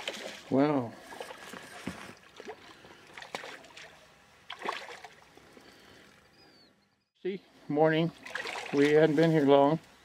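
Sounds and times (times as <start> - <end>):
water lapping around a boat: 0.0 - 6.5
fish thrashing in water: 4.5 - 5.2, 8.2 - 9.0.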